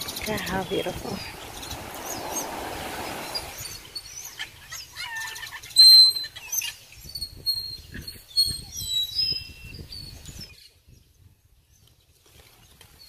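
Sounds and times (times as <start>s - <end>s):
soft rushing noise: 0.0s - 4.0s
parrots chirping and squawking: 4.3s - 5.8s.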